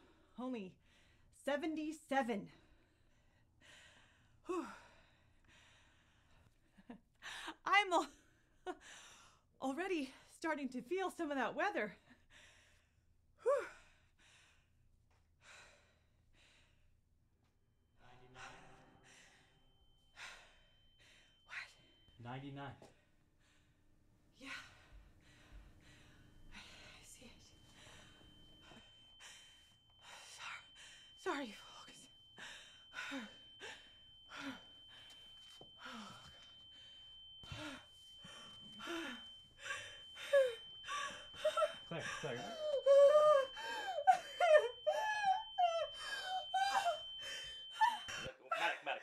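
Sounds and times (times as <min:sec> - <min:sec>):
woman breathing heavily: 0:02.9 - 0:06.6, 0:08.8 - 0:09.5, 0:12.2 - 0:14.8, 0:15.4 - 0:16.9, 0:18.4 - 0:22.2, 0:24.4 - 0:48.7
faint high steady tone: 0:18.2 - 0:23.7, 0:24.3 - 0:49.0
woman hyperventilating: 0:32.4 - 0:48.3.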